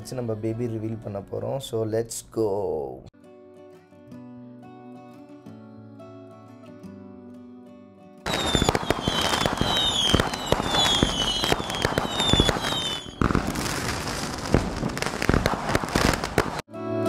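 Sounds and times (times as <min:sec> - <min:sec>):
falling whistles: 0:08.3 - 0:13.6
fireworks crackling and popping: 0:08.3 - 0:16.7.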